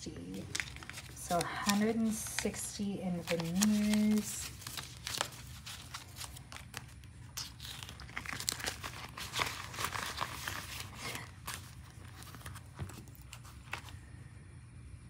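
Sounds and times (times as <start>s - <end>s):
paper bills and plastic rustling: 0.0s - 14.0s
plastic pages flipped: 0.2s - 14.0s.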